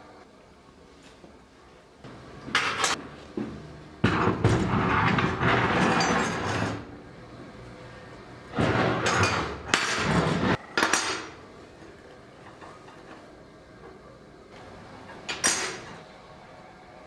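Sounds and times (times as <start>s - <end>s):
metal clattering on a workbench: 4.0s - 6.9s, 8.6s - 11.4s, 15.2s - 16.0s.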